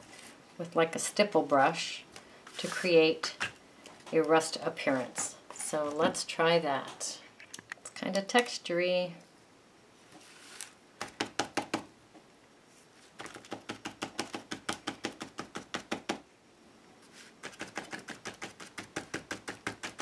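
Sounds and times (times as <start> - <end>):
brush tapping on card: 13.2 - 16.2, 17.4 - 20.0.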